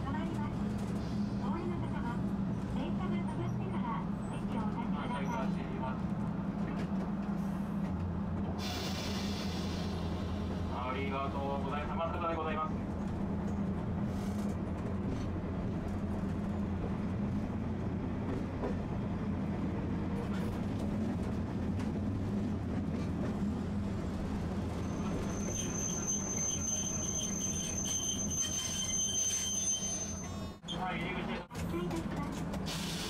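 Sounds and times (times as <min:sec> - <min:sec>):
streetcar rumble and hum: 0:00.0 - 0:33.0
high steady squeal: 0:24.8 - 0:30.3.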